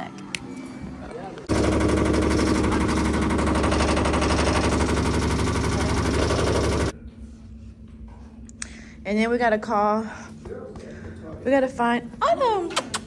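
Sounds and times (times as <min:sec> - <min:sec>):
paint shaker machine rattling: 0:01.5 - 0:06.9.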